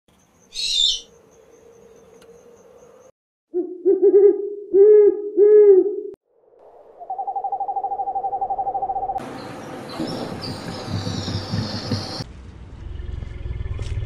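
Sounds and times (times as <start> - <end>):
owl hooting: 0.5 - 1.2, 7.0 - 9.2.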